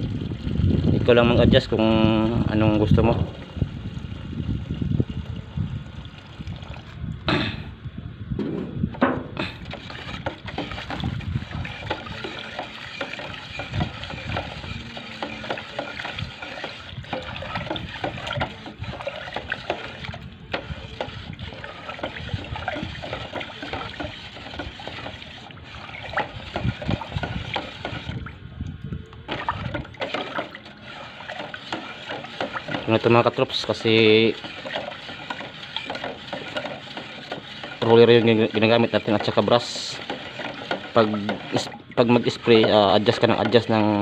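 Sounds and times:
liquid swishing in can: 9.5s - 28.4s, 29.3s - 44.0s.

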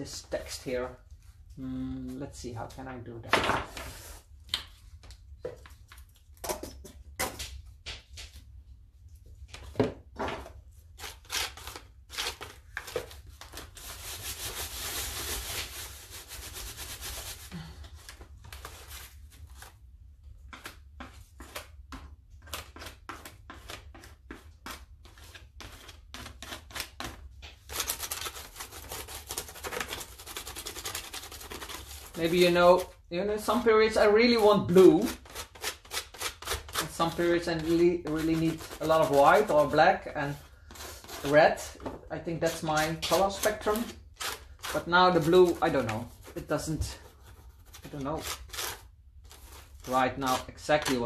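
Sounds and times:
paper tearing and scraping: 10.8s - 17.7s, 22.4s - 41.8s, 42.4s - 51.0s.

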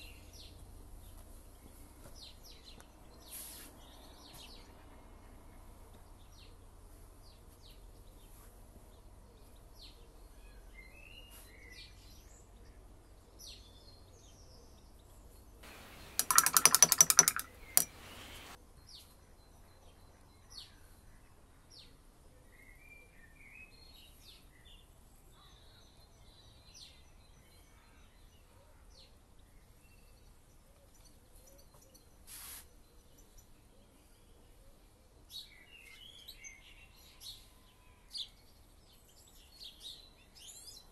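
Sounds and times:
faint birdsong: 0.0s - 40.9s
rapid rattle of clicks: 15.6s - 18.6s.

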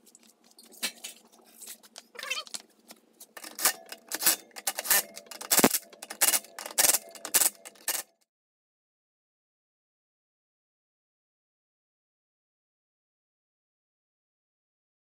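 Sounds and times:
impact driver hammering: 3.5s - 8.0s.

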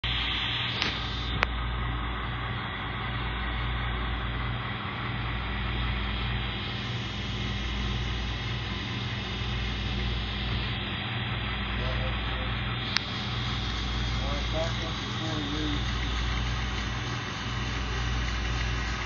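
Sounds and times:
model train humming on track: 0.0s - 19.0s
click: 0.7s - 1.5s, 12.9s - 13.1s.

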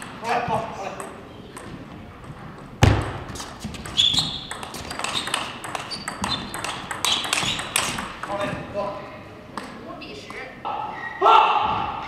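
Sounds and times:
shoes squeaking on floor: 1.7s - 8.8s
ping pong ball clicking: 3.8s - 8.4s.

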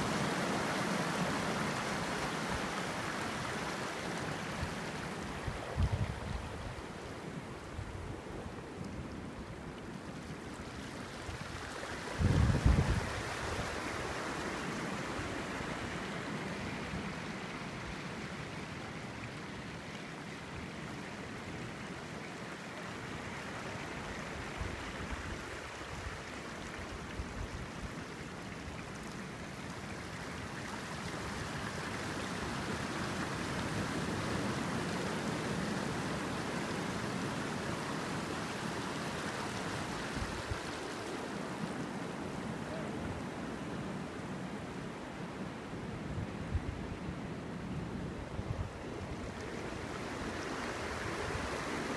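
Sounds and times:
sea water washing over reef: 0.0s - 7.8s, 8.5s - 19.7s, 48.7s - 51.9s.

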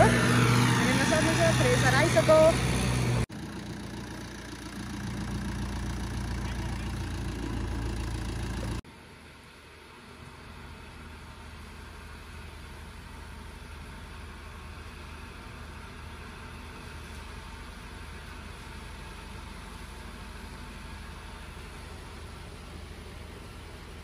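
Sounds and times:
thresher engine humming: 0.0s - 8.8s.

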